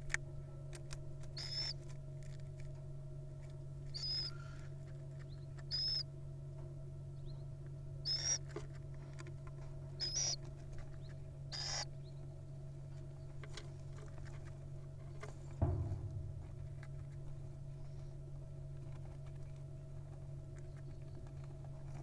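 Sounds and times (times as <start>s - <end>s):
steady low hum: 0.0s - 22.0s
owls raspy calls: 1.4s - 1.8s, 3.9s - 4.7s, 5.3s - 6.1s, 8.0s - 8.5s, 10.0s - 10.4s, 11.5s - 11.9s
knock: 15.6s - 17.0s.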